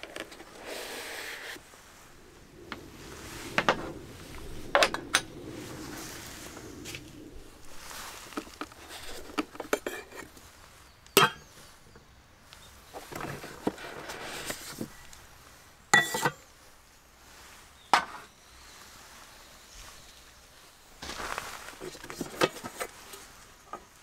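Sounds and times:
cups and pot clicking and rustling: 8.2 - 10.4, 11.2 - 11.5, 16.0 - 16.4, 21.8 - 23.9.

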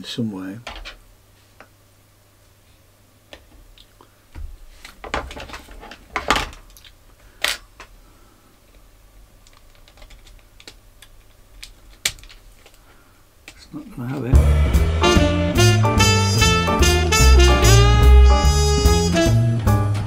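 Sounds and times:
plastic cassette clicking: 9.4 - 12.8.

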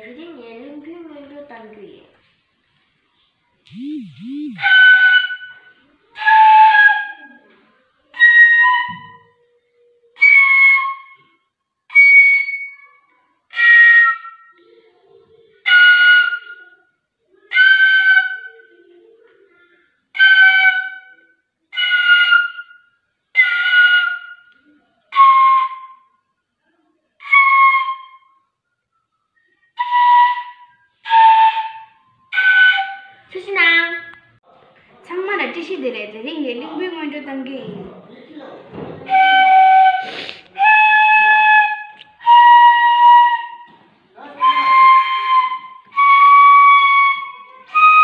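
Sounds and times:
breathy bamboo flute notes: 3.7 - 5.6, 29.8 - 33.1, 39.0 - 48.0.

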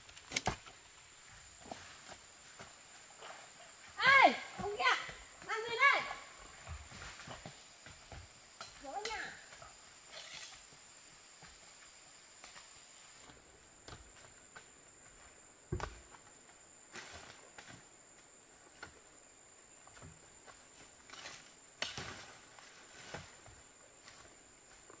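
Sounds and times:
high-pitched insect chirr: 1.0 - 15.4.

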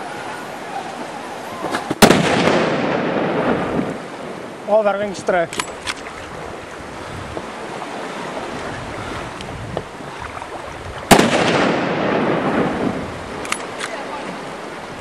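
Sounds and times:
background hiss: 0.0 - 8.6, 9.2 - 15.0
rifle shot with rolling echo: 2.0 - 4.0, 11.1 - 13.8.

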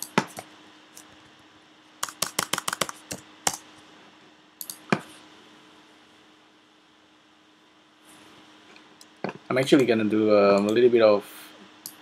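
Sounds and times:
computer keyboard typing: 2.0 - 3.6.

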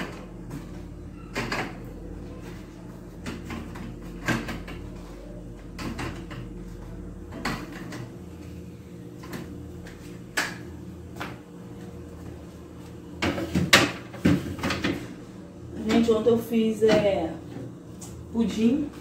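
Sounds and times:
refrigerator hum: 0.0 - 19.0
containers knocking on fridge shelves: 13.2 - 15.0.

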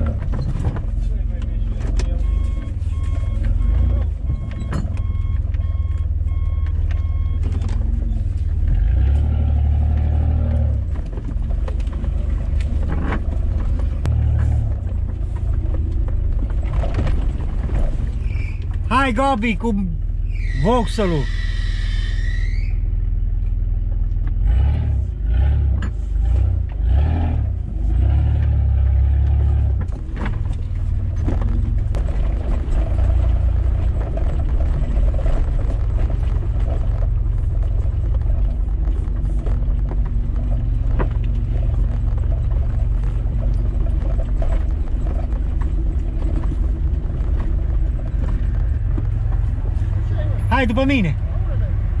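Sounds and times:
knocks and clatter from bumps: 0.0 - 18.9, 28.2 - 50.2
vehicle engine and tyres rumbling: 0.0 - 52.0.

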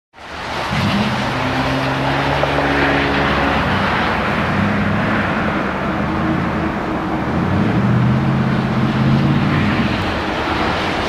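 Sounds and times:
airliner jet engines droning: 0.2 - 11.0.

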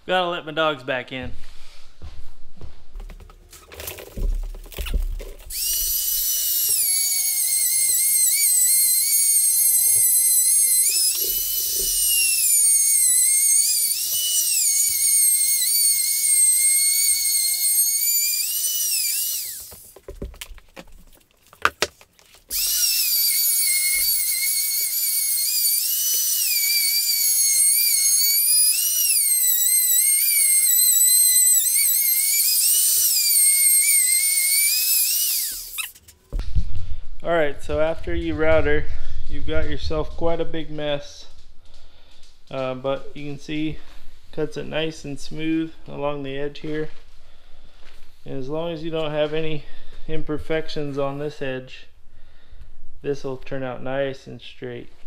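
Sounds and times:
router whining while cutting laminate: 5.5 - 19.9, 22.5 - 36.0.

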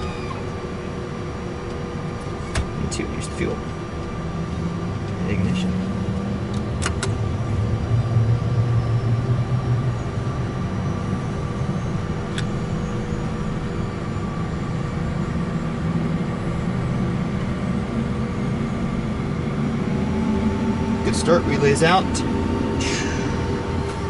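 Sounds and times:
jet engine spooling up: 7.2 - 24.0.

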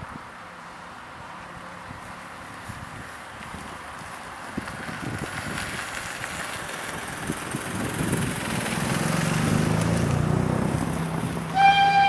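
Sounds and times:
steam locomotive exhaust chuffing: 11.5 - 12.0.

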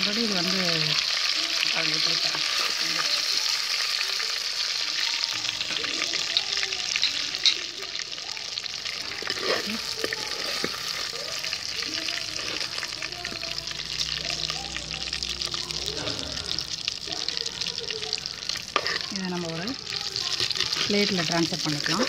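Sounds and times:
chicken deep-frying in oil: 0.0 - 22.0
slotted spoon scraping pot: 9.1 - 11.2, 18.7 - 19.2.

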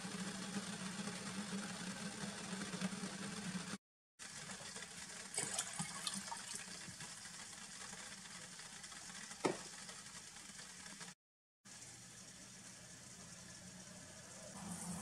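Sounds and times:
water pouring into metal pot: 4.2 - 11.2.

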